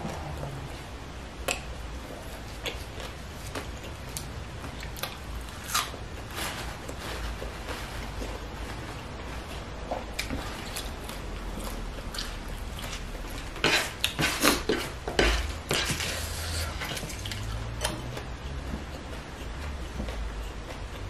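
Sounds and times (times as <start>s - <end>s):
leafy vegetables snapping and rustling: 2.5s - 14.7s.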